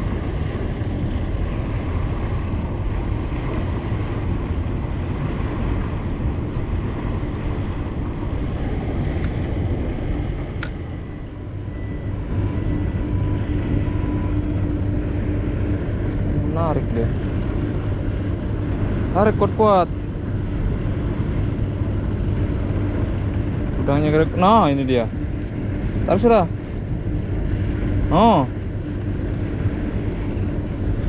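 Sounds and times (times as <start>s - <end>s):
boat engine rumble: 0.0s - 31.0s.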